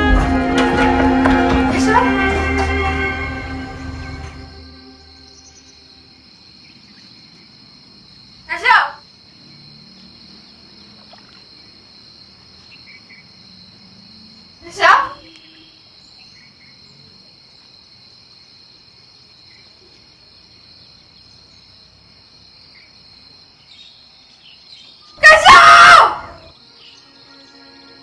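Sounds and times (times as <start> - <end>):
crickets chirring: 2.0 - 28.0
loud scream: 25.2 - 26.5.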